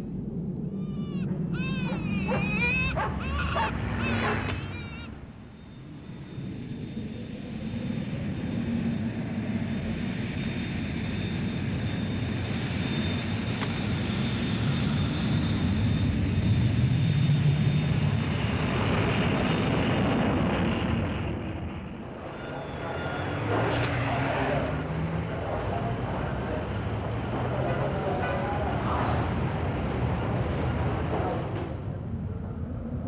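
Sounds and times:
jet engine rumble and whine: 0.0 - 33.0.

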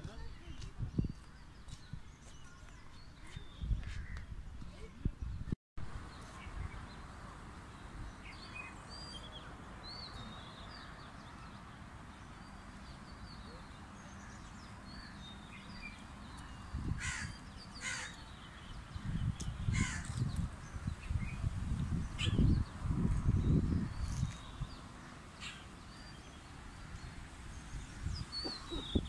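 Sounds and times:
birds chirping and whistling: 19.1 - 26.4, 27.6 - 29.0.

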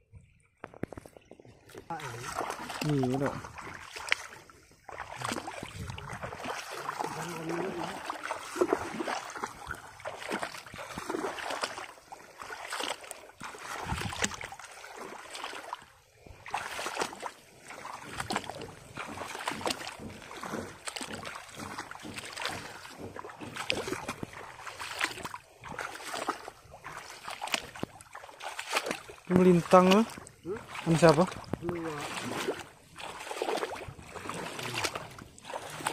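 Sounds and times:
footsteps wading through water: 0.0 - 35.9.

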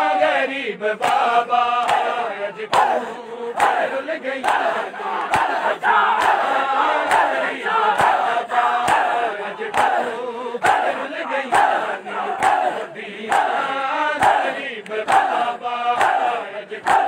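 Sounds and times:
crowd chanting a lament: 0.0 - 17.0
men slapping chests in time: 1.0 - 17.0.

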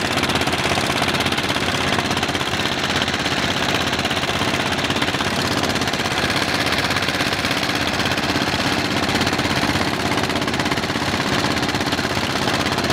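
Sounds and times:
motorboat engine chugging: 0.0 - 12.9.

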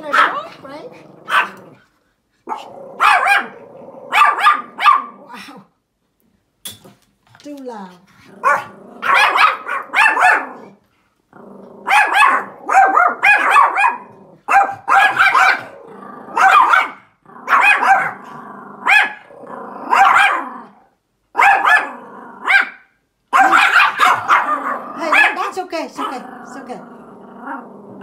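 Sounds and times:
small dog barking: 0.0 - 1.7, 2.5 - 5.3, 8.4 - 10.8, 11.8 - 18.2, 18.8 - 20.6, 21.3 - 26.2.

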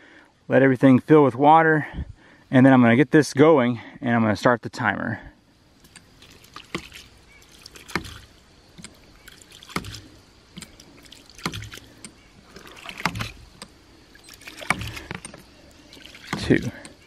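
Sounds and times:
water spurting: 5.7 - 17.0
pump valve knocking shut: 9.7 - 10.8, 12.9 - 13.7, 14.6 - 15.4.

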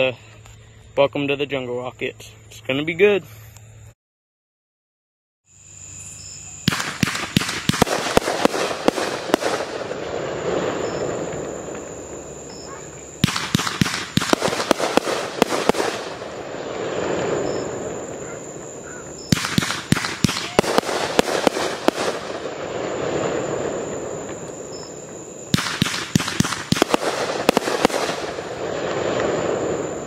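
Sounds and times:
firework cakes cracking and banging: 6.7 - 12.2, 13.1 - 30.0.

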